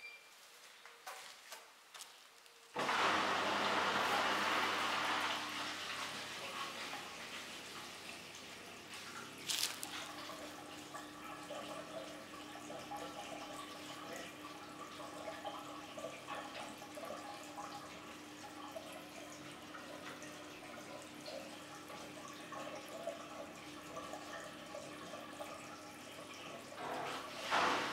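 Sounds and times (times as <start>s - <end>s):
water trickling in washing machine drum: 5.8s - 27.9s.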